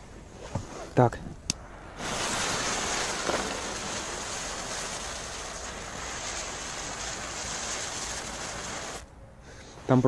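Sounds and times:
spinner fireworks fizzing hiss: 0:01.5 - 0:09.1.

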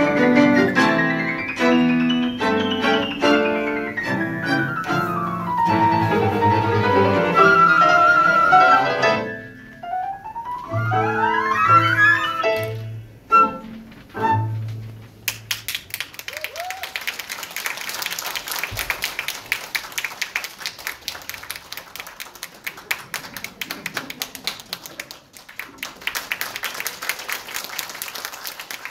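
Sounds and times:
audience applauding: 0:15.3 - 0:28.9.

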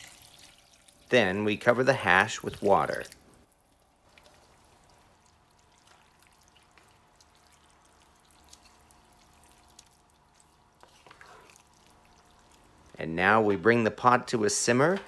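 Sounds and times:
wooden spoon stirring thick stew: 0:03.8 - 0:13.7.

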